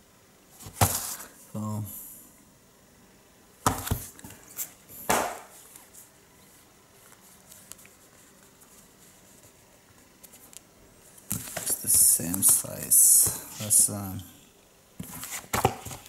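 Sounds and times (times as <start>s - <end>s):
books knocking on table: 3.6s - 4.1s, 5.1s - 5.5s, 15.0s - 16.0s
faint handling noise: 3.8s - 14.2s.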